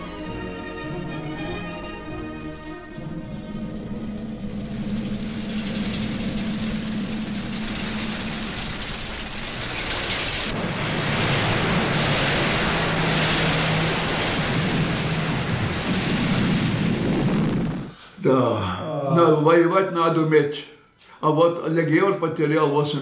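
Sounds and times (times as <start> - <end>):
propeller plane engine drone: 0.0 - 18.0.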